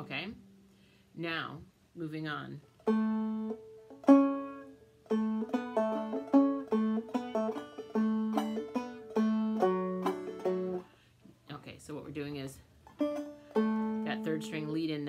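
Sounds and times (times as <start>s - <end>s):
banjo plucked melody: 2.8s - 10.9s, 12.1s - 15.0s.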